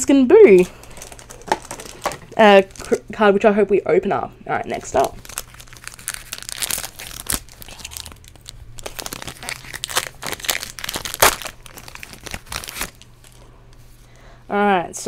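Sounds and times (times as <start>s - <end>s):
foil wrapper crinkling and tearing: 0.5s - 3.0s, 4.7s - 13.4s.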